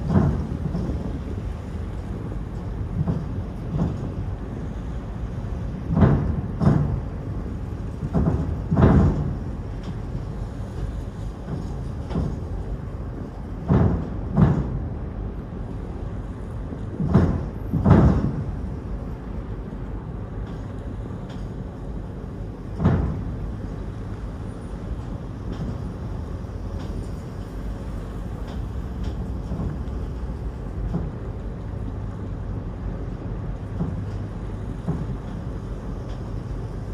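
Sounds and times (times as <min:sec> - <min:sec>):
heavy clunks: 0:00.0 - 0:01.0, 0:05.9 - 0:07.1, 0:08.0 - 0:10.0, 0:13.6 - 0:14.9, 0:17.0 - 0:18.6, 0:22.8 - 0:23.4, 0:28.5 - 0:30.0, 0:33.6 - 0:34.2
ferry engine humming: 0:00.0 - 0:36.9.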